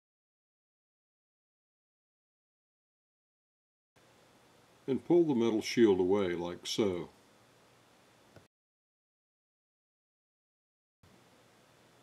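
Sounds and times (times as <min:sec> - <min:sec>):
faint hiss: 0:04.0 - 0:08.5.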